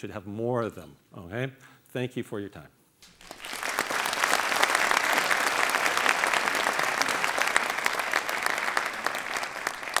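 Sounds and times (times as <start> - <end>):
audience clapping: 3.0 - 10.0.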